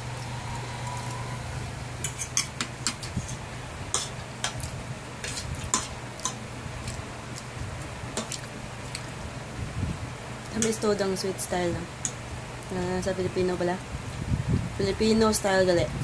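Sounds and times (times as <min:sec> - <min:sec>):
steady low hum: 0:00.0 - 0:16.0
fork scraping a plate: 0:02.0 - 0:06.4.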